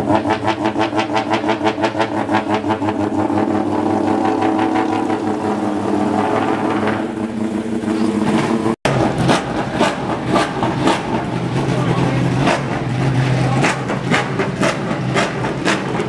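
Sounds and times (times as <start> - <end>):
rotary engine idling: 0.0 - 16.0.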